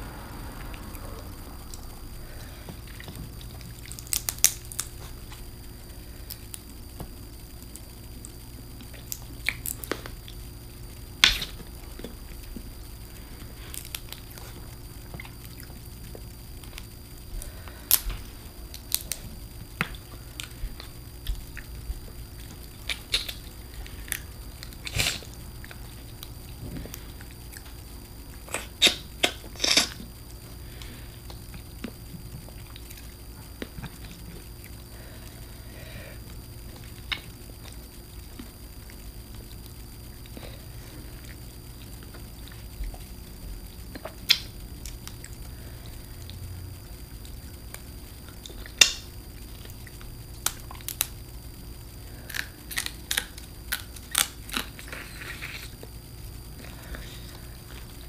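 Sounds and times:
low hum: 0:00.0 - 0:58.0
chewing: 0:00.6 - 0:10.6, 0:11.2 - 0:35.4, 0:36.2 - 0:46.4, 0:47.1 - 0:51.2, 0:52.1 - 0:56.0.

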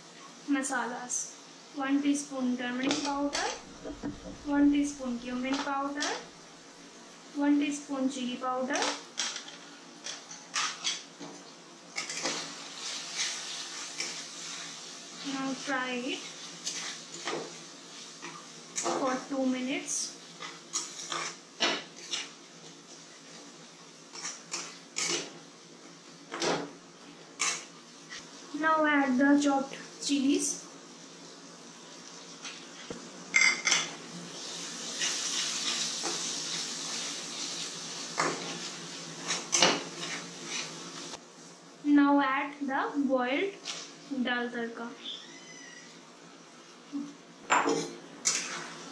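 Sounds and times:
frying hiss: 0:00.0 - 0:48.9
spatula scraping a steel pan: 0:20.4 - 0:22.4, 0:48.2 - 0:48.8.

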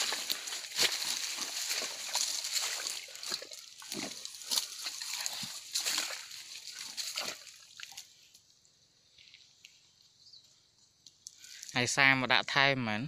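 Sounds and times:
footsteps in mud and water: 0:00.0 - 0:08.5
faint ticks: 0:11.0 - 0:11.8.

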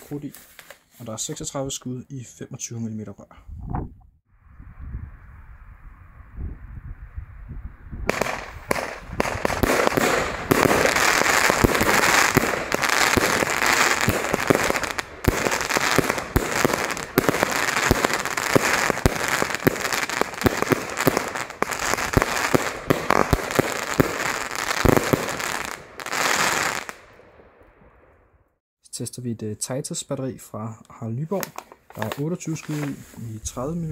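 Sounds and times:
fireworks shots and crackling: 0:08.0 - 0:28.3.

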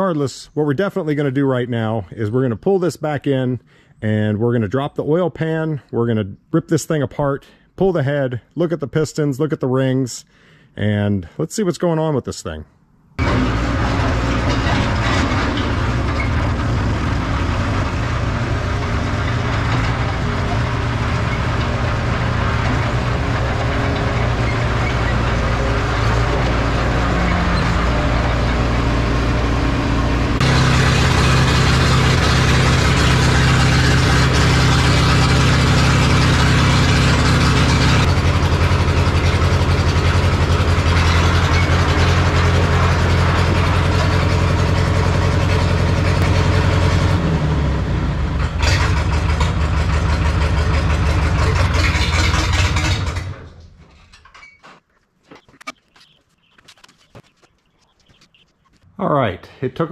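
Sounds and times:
diesel engine running: 0:13.2 - 0:53.6.

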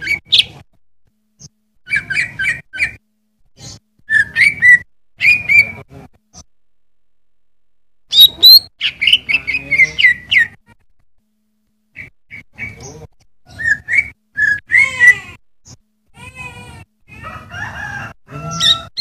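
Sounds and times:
bird singing loudly: 0:04.1 - 0:05.8, 0:08.1 - 0:10.6.

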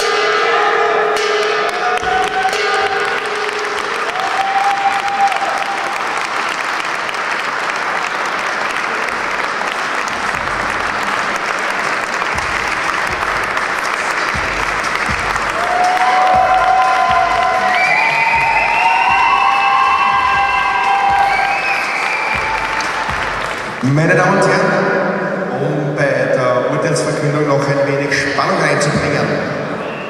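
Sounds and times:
audience applauding: 0:01.2 - 0:24.7.

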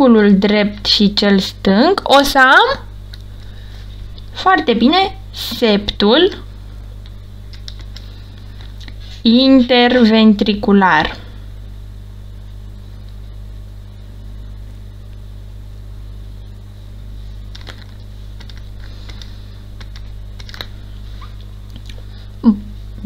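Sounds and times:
low electrical mains hum: 0:00.0 - 0:23.0.

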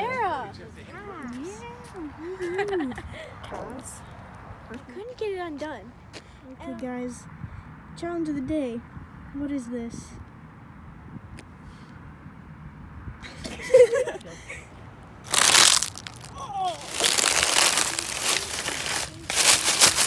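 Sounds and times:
dry leaf crunching underfoot: 0:15.2 - 0:20.0.

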